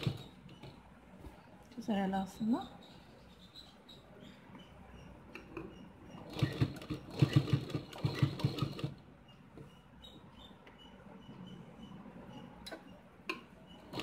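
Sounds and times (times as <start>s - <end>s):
sewing machine stitching: 0.0s - 0.9s, 5.5s - 9.0s, 13.8s - 14.0s.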